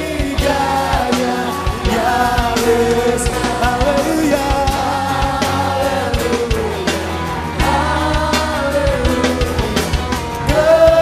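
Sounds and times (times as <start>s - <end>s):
drum kit beat: 0.0s - 11.0s
group singing held notes: 0.0s - 11.0s.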